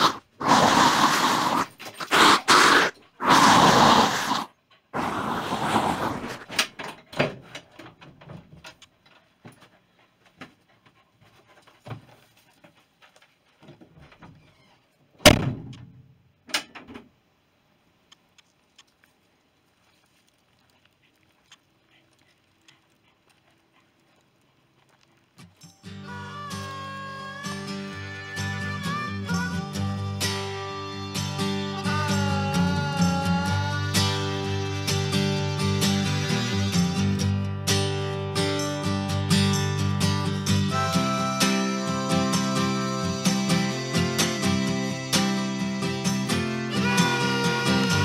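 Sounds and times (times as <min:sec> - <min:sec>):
paws on van floor: 0:06.8 - 0:14.4, 0:18.7 - 0:25.7
dog breathing heavily: 0:09.0 - 0:13.4, 0:20.7 - 0:25.0
loud thunk: 0:15.2 - 0:16.0.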